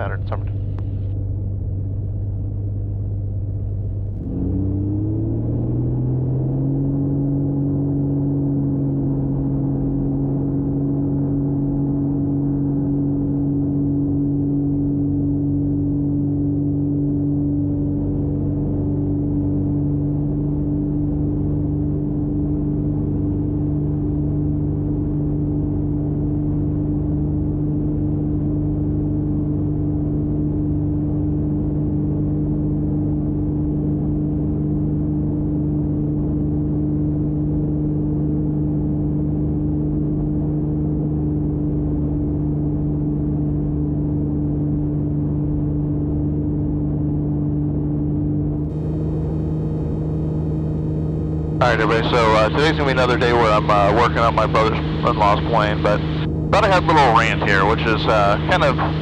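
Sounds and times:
aircraft engine and propeller drone: 0.0s - 59.0s.

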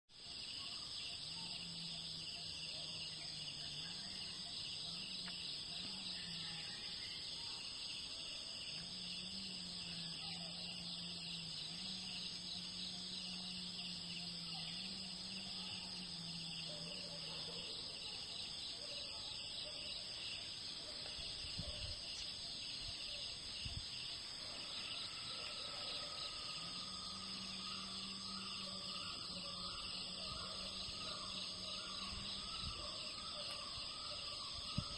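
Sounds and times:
insects chirring: 0.1s - 34.9s.

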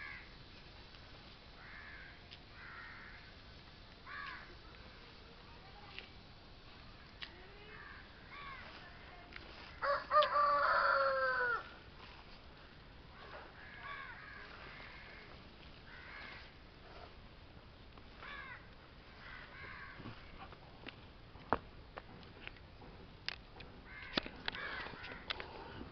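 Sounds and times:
crows cawing: 0.0s - 0.4s, 1.6s - 3.4s, 4.0s - 4.6s, 7.7s - 8.9s, 9.6s - 11.8s, 13.2s - 16.6s, 18.2s - 20.3s, 23.8s - 25.6s
rooster crowing: 9.8s - 11.8s.

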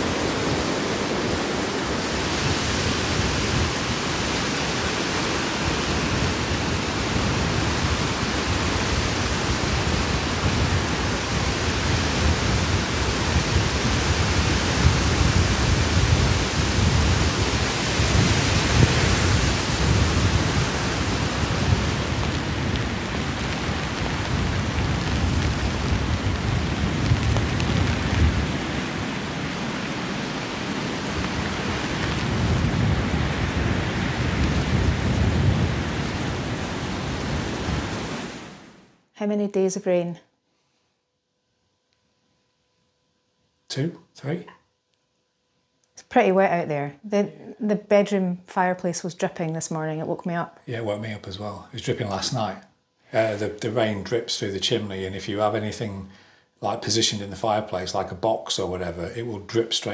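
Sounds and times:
heavy rain falling: 0.0s - 38.8s, 50.7s - 52.6s, 53.2s - 56.0s, 56.6s - 59.9s.

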